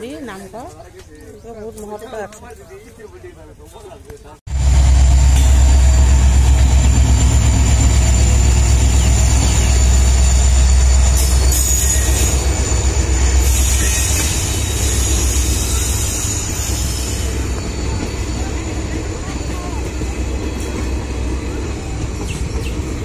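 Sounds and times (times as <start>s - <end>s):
passenger train passing: 4.5s - 23.0s.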